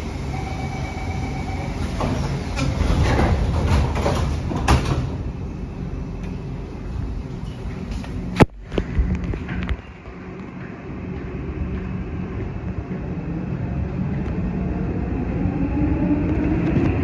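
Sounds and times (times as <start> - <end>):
train doors sliding shut: 0.0 - 5.4
standing train hum: 0.0 - 17.0
short warning tone: 0.3 - 2.0.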